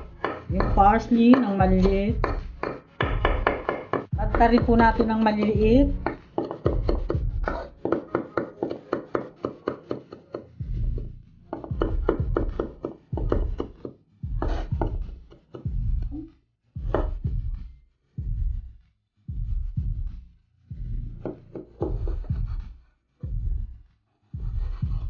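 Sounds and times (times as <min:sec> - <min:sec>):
knife chopping on wooden board: 0:00.0 - 0:10.5, 0:11.5 - 0:16.1, 0:16.8 - 0:17.2.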